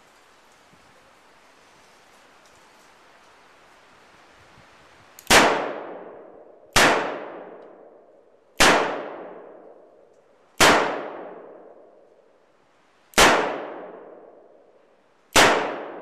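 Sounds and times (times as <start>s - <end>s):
revolver gunshots: 5.3s - 7.6s, 8.6s - 9.6s, 10.6s - 11.7s, 13.2s - 14.2s, 15.3s - 16.0s.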